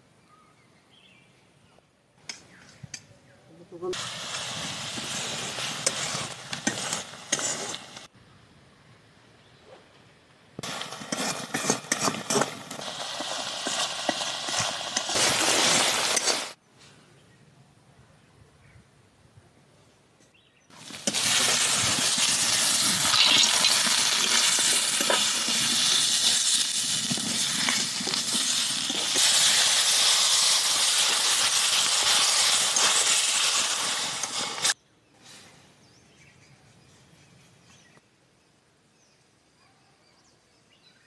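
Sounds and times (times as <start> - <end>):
food sizzling in a pan: 3.9 - 8.1, 10.6 - 16.6, 20.8 - 34.8.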